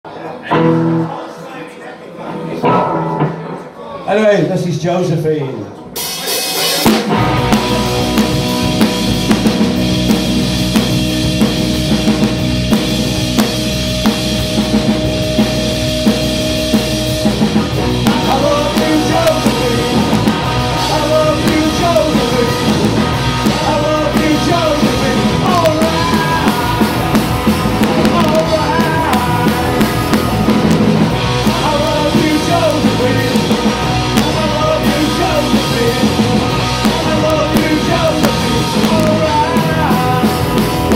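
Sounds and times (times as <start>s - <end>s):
vocals: 0.1s - 7.2s, 17.5s - 40.9s
rock band playing: 0.2s - 1.5s, 2.1s - 40.9s.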